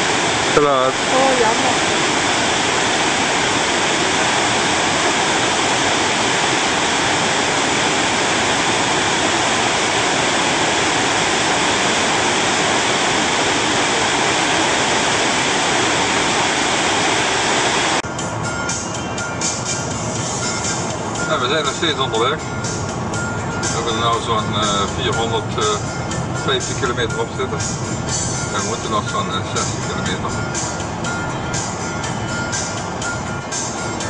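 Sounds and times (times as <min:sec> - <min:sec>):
waterfall rushing: 0:00.0 - 0:18.0.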